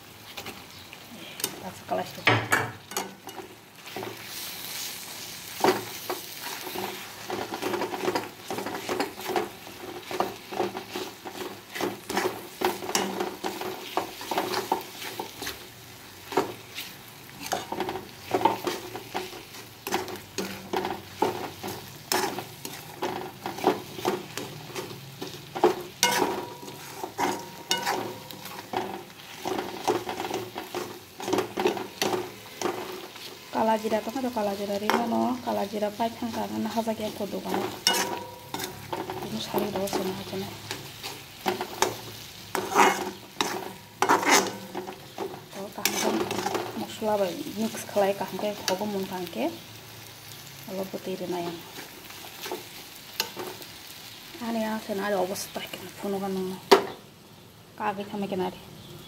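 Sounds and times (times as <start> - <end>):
food sizzling in oil: 0.0 - 59.0
metal spatula scraping pan: 2.6 - 15.7, 16.3 - 47.9.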